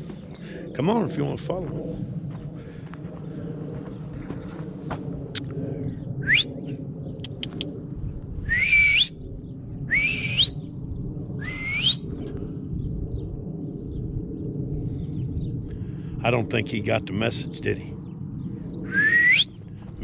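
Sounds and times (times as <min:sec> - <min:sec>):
low rumble: 0:00.0 - 0:20.0
man whistling rising calls: 0:06.2 - 0:06.6, 0:08.4 - 0:09.2, 0:09.8 - 0:10.7, 0:11.4 - 0:12.2, 0:18.8 - 0:19.6.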